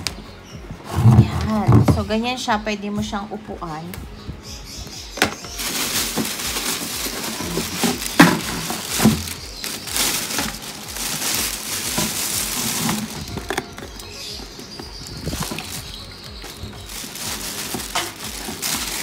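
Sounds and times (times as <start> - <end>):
hard plastic items knocking: 0.8 - 2.1, 5.2 - 19.0
plastic bag rustling: 5.2 - 19.0.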